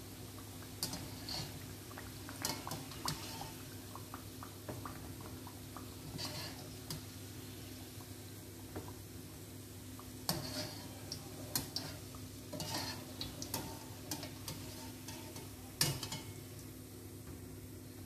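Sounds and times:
dough deep-frying in hot oil: 0.0s - 18.0s
skimmer clinking and scraping pan: 10.3s - 16.4s.

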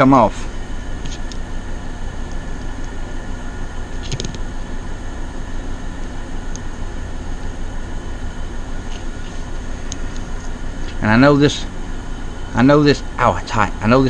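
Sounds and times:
air conditioners humming: 0.0s - 14.0s.

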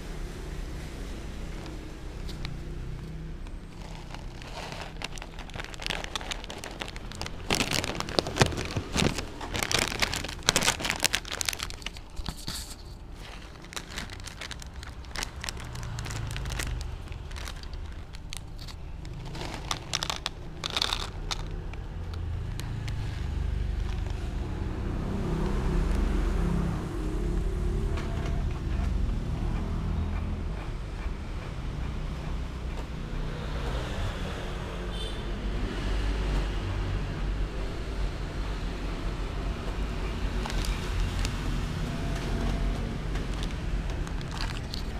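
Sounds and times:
low steady rumble: 0.0s - 31.3s
plastic pouch crinkling: 1.5s - 24.5s, 40.2s - 44.9s.

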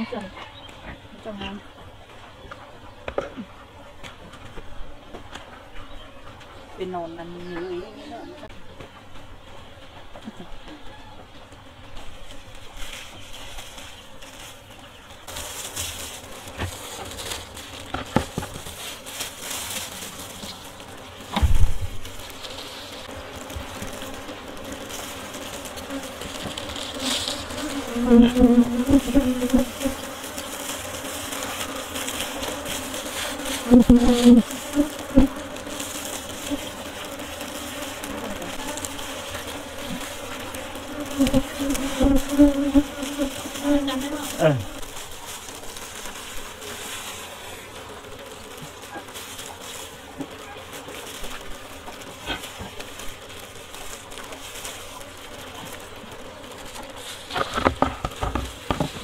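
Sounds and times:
honey bees buzzing: 0.0s - 59.0s.

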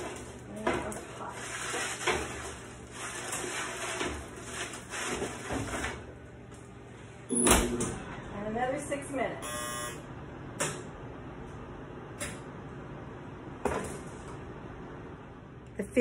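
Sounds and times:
sheet pans scraping on wire racks: 0.0s - 6.1s.

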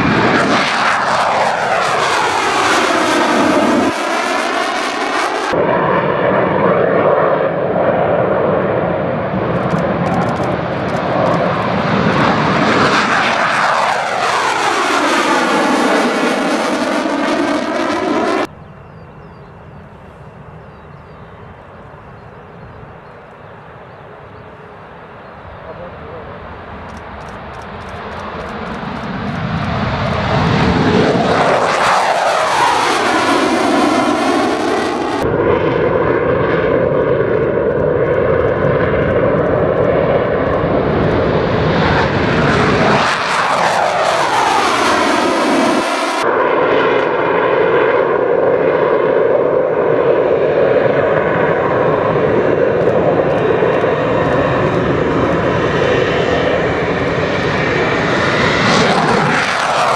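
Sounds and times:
jet engines taking off: 0.0s - 59.9s.

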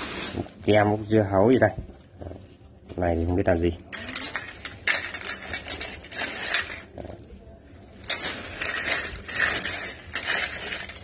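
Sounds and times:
metal utensils clinking: 3.9s - 6.9s, 8.0s - 11.0s.

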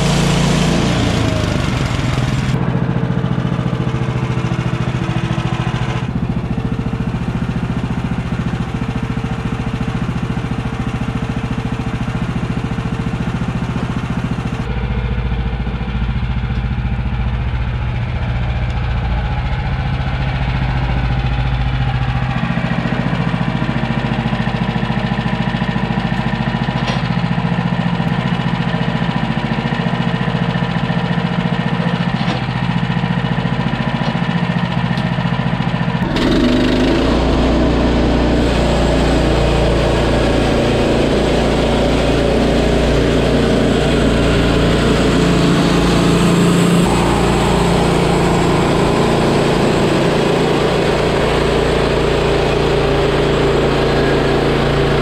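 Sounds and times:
band sawmill engine running: 0.0s - 55.0s
band blade sawing log: 36.0s - 53.2s.

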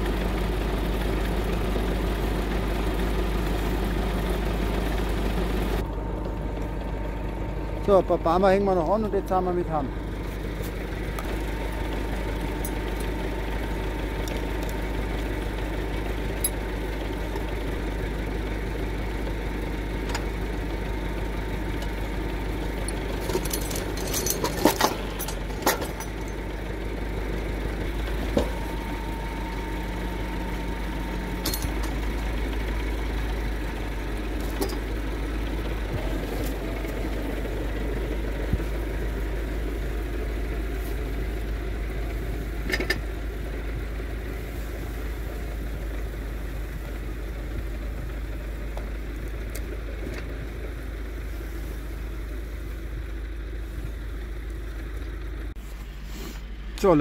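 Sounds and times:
tractor diesel engine idling: 0.0s - 57.0s
metallic chain clinks: 22.9s - 26.4s, 31.3s - 31.9s.

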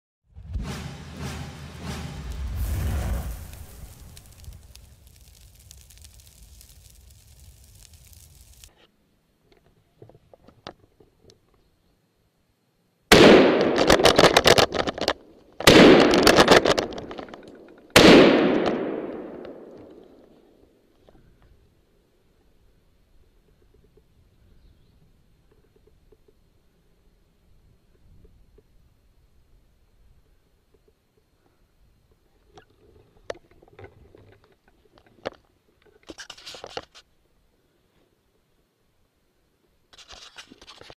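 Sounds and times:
rapid sharp cracks: 1.2s - 8.7s, 13.1s - 20.2s
scraping and rustling: 1.6s - 9.0s, 32.6s - 37.1s, 39.9s - 40.9s
rifle shots: 13.1s - 14.7s, 15.6s - 17.1s, 18.0s - 19.8s.

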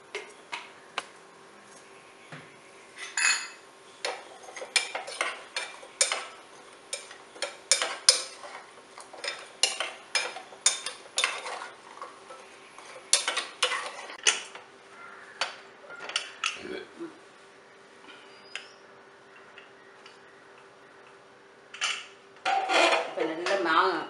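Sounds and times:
ladle clinking and scraping pan: 3.0s - 14.5s, 21.8s - 23.2s.

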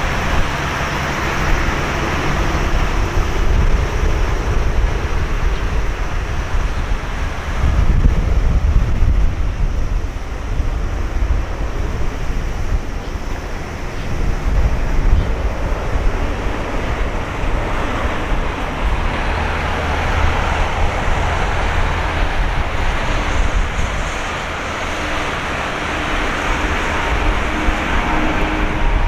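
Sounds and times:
jet engine roar: 0.0s - 29.0s
wind rumble on microphone: 0.0s - 29.0s.

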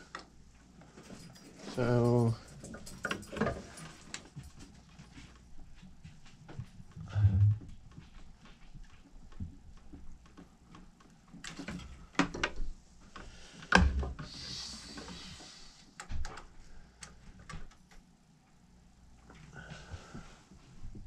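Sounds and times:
clicks and knocks of handling: 6.4s - 14.2s.

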